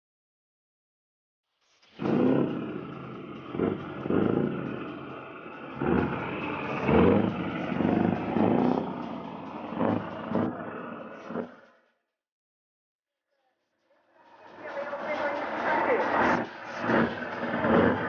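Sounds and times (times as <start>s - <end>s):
diesel engine revving: 2.0s - 11.7s, 14.4s - 18.0s.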